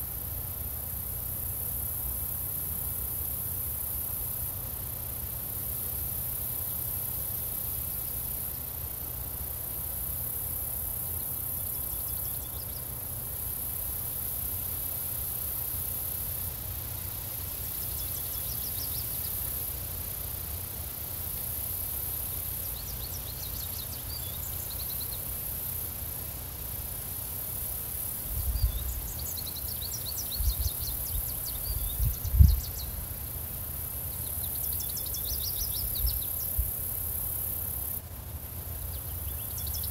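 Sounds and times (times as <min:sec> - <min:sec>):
crickets chirping: 0:00.0 - 0:39.9
bird songs: 0:17.7 - 0:19.6, 0:22.5 - 0:25.4, 0:28.4 - 0:33.1, 0:34.1 - 0:36.6, 0:38.8 - 0:39.9
wind rumbling on microphone: 0:28.4 - 0:29.0, 0:30.4 - 0:32.9.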